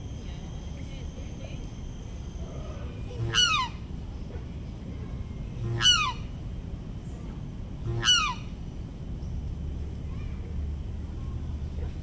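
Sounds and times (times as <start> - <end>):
swan calling: 3.2 - 3.8, 5.6 - 6.3, 7.9 - 8.5.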